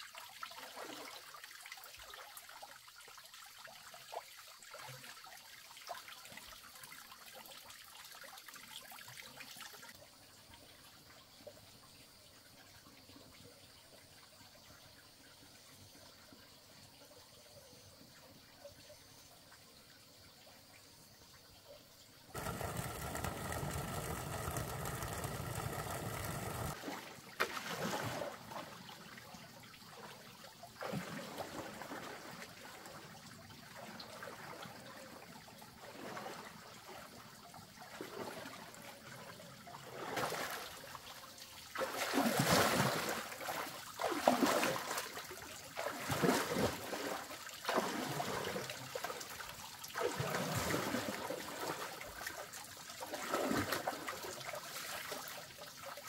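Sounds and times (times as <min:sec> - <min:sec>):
water running and splashing: 0:22.3 - 0:29.1, 0:39.8 - 0:56.0.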